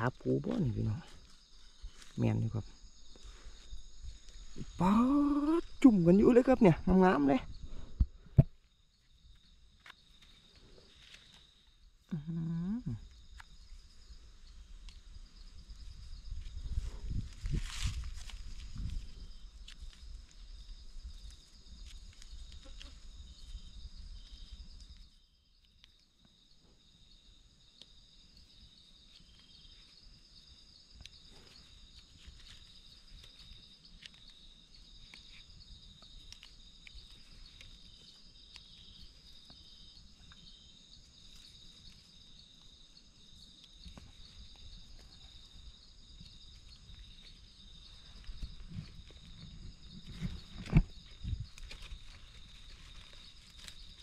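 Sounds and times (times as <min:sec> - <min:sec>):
night insects chirring: 0:00.0 - 0:54.0
pulsing insect chirps: 0:00.0 - 0:54.0
gloved hands rustling soil: 0:14.9 - 0:22.8, 0:46.3 - 0:54.0.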